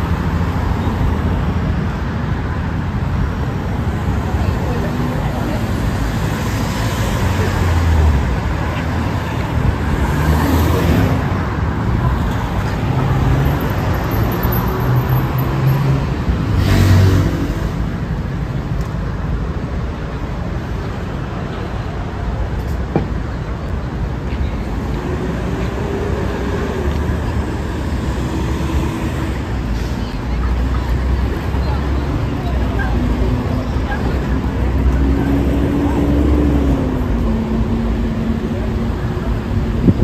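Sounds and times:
passing cars road noise: 0:00.0 - 0:40.0.

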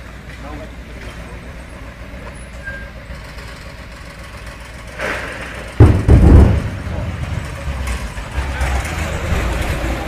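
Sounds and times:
steady background noise: 0:00.0 - 0:10.0
explosion boom: 0:05.8 - 0:07.4.

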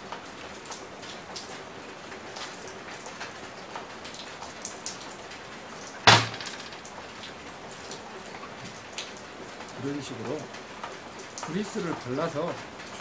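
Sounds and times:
metal tin thud on workbench: 0:06.1 - 0:06.8.

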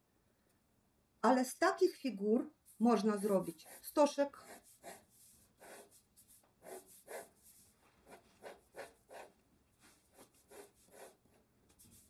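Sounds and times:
pencil scratching on paper: 0:02.6 - 0:12.0.

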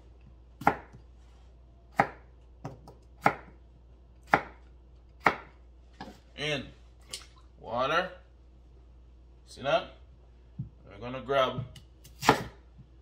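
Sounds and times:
knife chopping on plastic board: 0:00.6 - 0:01.0, 0:01.9 - 0:03.6, 0:04.2 - 0:04.6, 0:05.2 - 0:05.5, 0:11.6 - 0:13.0.

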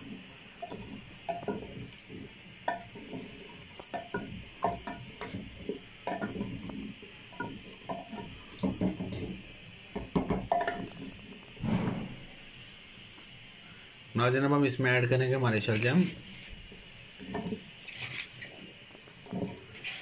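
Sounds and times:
steady hiss: 0:00.0 - 0:20.0
spatula scraping clay pot: 0:19.5 - 0:20.0.

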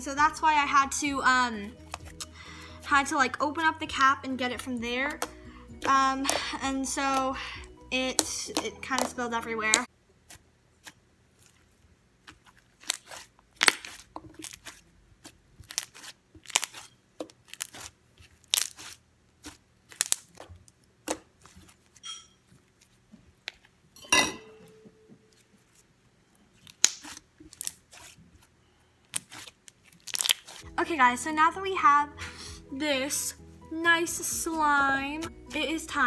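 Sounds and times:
slime popping and crackling: 0:08.0 - 0:11.6, 0:12.2 - 0:21.8, 0:26.6 - 0:28.2, 0:29.1 - 0:30.6.

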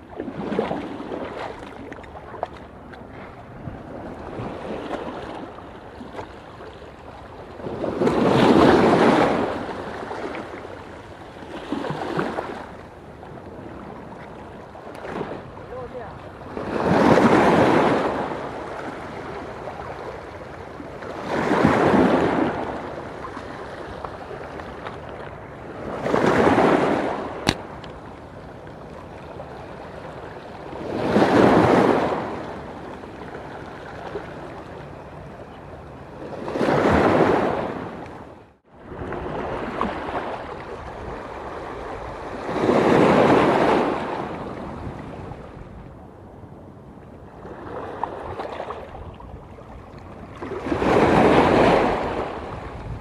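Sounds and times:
waves washing on rocky shore: 0:14.9 - 0:19.4, 0:30.7 - 0:32.6, 0:50.4 - 0:53.0.

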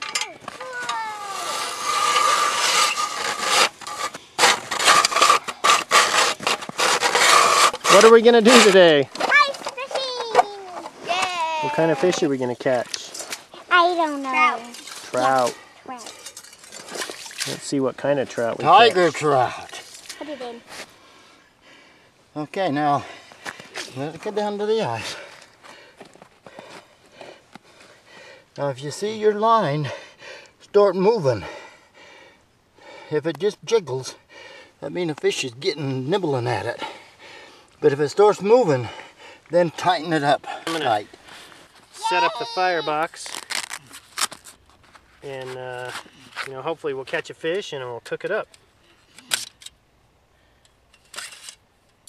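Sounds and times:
ice auger grinding through ice: 0:00.1 - 0:09.6.

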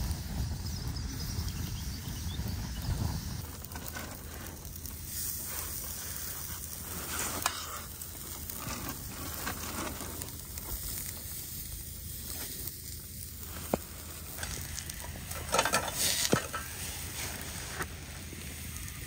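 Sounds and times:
chicken sizzling on a grill: 0:00.0 - 0:19.0
food scraping in a frying pan: 0:03.2 - 0:18.0
metal tongs clicking on grate: 0:14.4 - 0:16.7.

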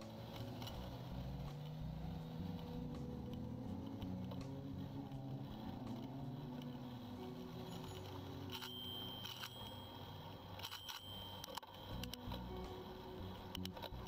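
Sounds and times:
vehicle engine running: 0:00.0 - 0:10.7.

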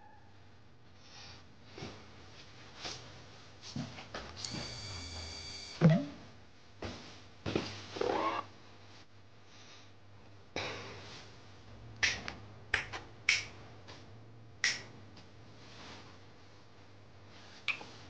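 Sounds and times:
finger snapping: 0:12.0 - 0:13.6, 0:14.6 - 0:14.9.

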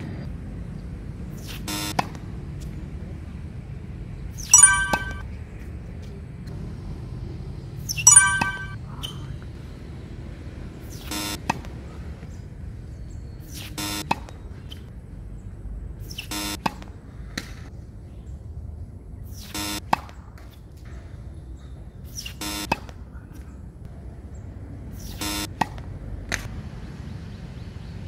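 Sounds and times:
short electronic beep: 0:04.5 - 0:05.2, 0:07.9 - 0:08.8.

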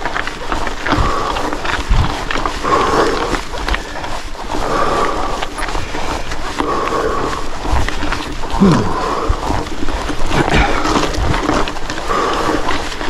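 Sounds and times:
person panting hard: 0:00.2 - 0:13.0
groaning exhale: 0:00.8 - 0:09.7.

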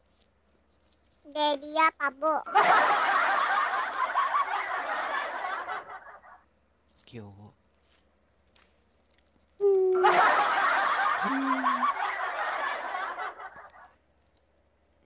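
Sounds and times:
person laughing: 0:09.6 - 0:12.1.

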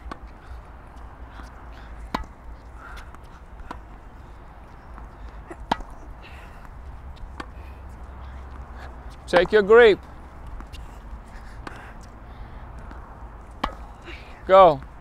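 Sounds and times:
tennis ball racquet pops: 0:05.6 - 0:06.0.

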